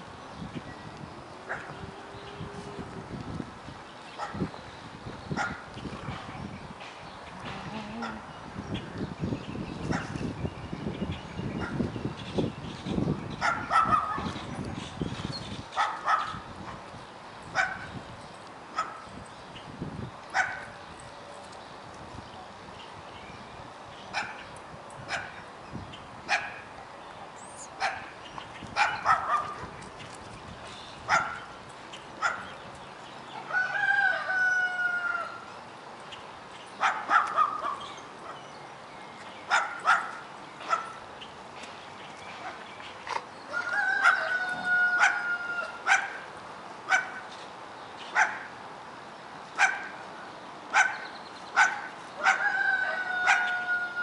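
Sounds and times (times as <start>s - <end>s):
puppies yipping and barking: 53.2s - 53.7s.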